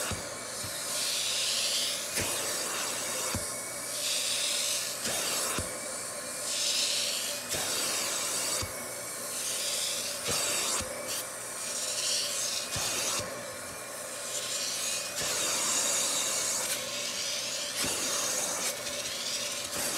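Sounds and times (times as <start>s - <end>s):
hiss of spray and suction: 0.0s - 19.9s.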